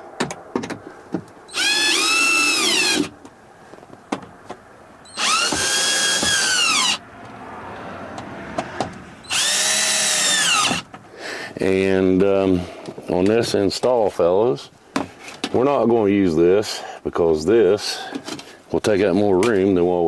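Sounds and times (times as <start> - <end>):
cordless drill driving screws: 1.5 - 3.1, 5.1 - 7.0, 9.3 - 10.8.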